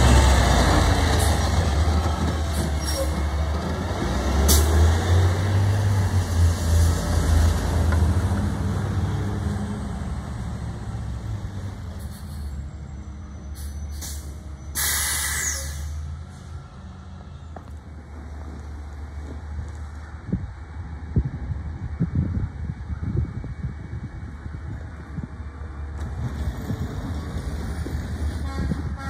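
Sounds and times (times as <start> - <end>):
air brakes hissing: 13.5 - 16.0.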